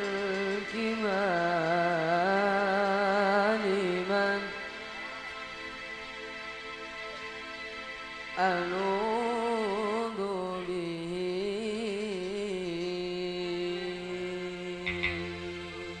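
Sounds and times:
man singing a chant: 0.0s - 5.4s, 8.4s - 16.0s
held accompaniment tones: 14.6s - 16.0s.

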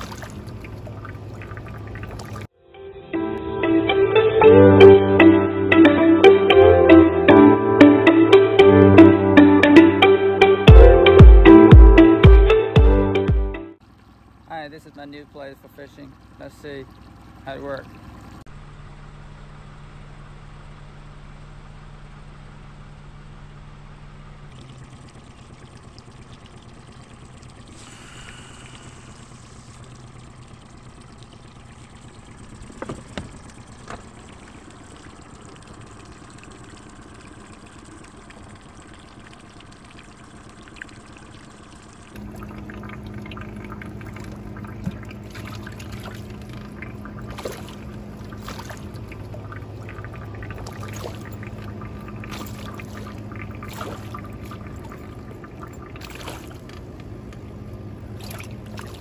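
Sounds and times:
fish splashing at surface: 0.0s - 2.5s, 24.5s - 56.9s, 58.1s - 59.0s
water washing past hull: 0.0s - 2.5s, 24.5s - 59.0s
outboard motor running: 0.0s - 2.6s, 3.7s - 59.0s.

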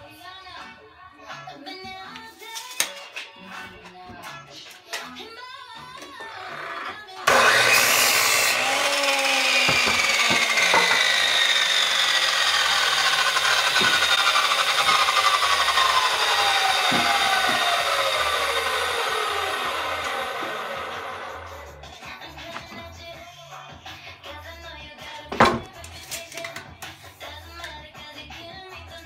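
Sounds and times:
miter saw cutting wood: 6.4s - 21.9s
saw blade spinning down whine: 7.3s - 21.9s.

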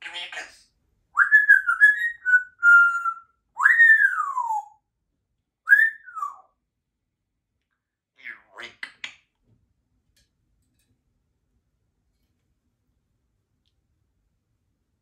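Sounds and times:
parrot whistling: 1.2s - 4.8s, 5.7s - 6.5s.

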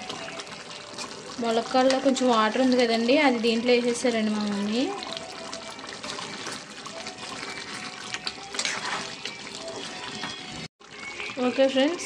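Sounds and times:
curry bubbling in a pan: 0.0s - 12.0s
metal spatula scraping pan: 5.8s - 10.7s.

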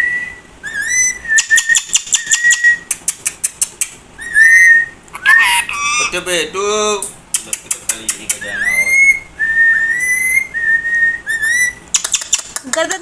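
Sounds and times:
parakeet whistling: 0.0s - 2.9s, 4.2s - 6.2s, 8.3s - 12.5s
parakeet sharp clicks: 1.4s - 4.0s, 7.3s - 8.4s, 11.9s - 13.0s.

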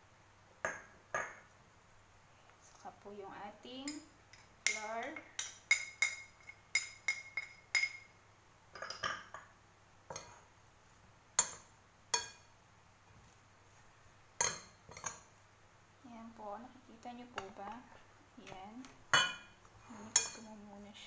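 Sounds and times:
metal utensil clinking on glass bowl: 3.9s - 8.1s, 14.4s - 15.2s, 19.1s - 20.5s
person speaking: 16.0s - 19.0s.

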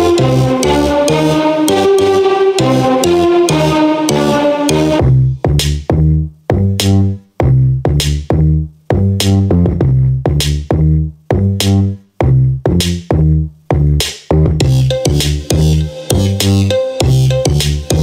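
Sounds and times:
electronic music with drum machine: 0.0s - 5.2s, 14.6s - 18.0s.

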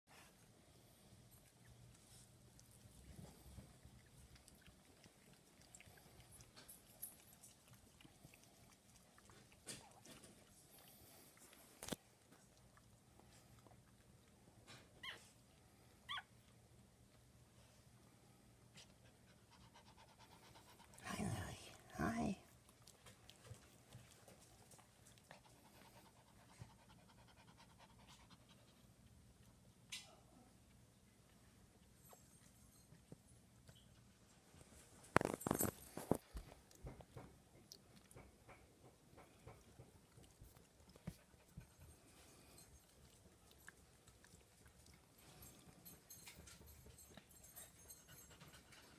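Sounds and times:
small dog panting: 18.7s - 29.2s, 36.6s - 48.9s.

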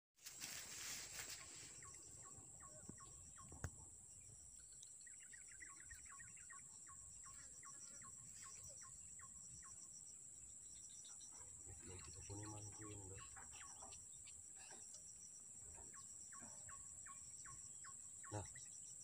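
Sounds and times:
insects droning: 0.2s - 19.0s
bird calling and chattering: 10.8s - 15.0s, 15.8s - 19.0s.

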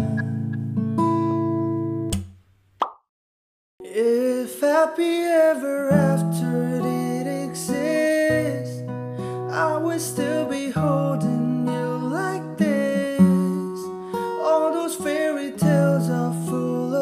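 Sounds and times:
person singing: 0.0s - 0.4s, 3.8s - 17.0s
acoustic guitar: 0.0s - 2.2s, 3.8s - 17.0s.

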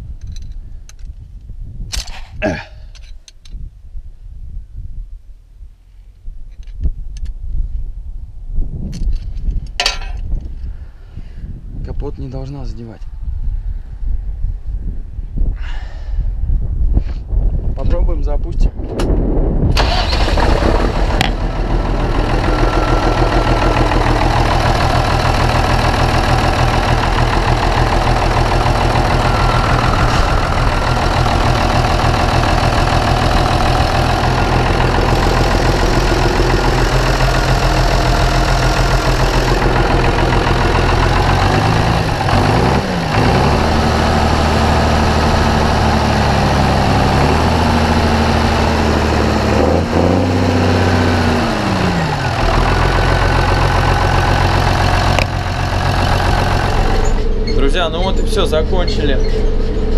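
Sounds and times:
tractor diesel engine idling: 19.8s - 59.9s.

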